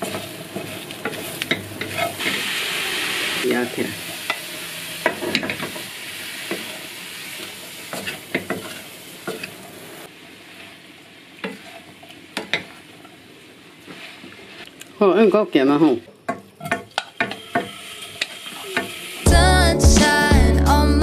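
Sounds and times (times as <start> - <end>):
wooden spatula scraping pan: 0.0 - 3.4, 7.4 - 9.6, 10.4 - 13.1, 13.8 - 14.7
mushrooms sizzling in a pan: 0.0 - 19.3.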